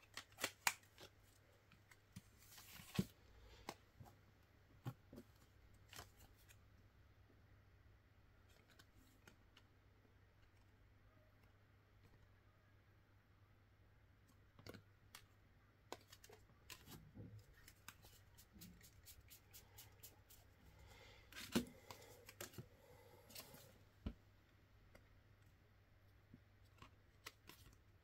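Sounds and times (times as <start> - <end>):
playing cards clicking and rustling: 0.0 - 1.2, 21.4 - 22.7.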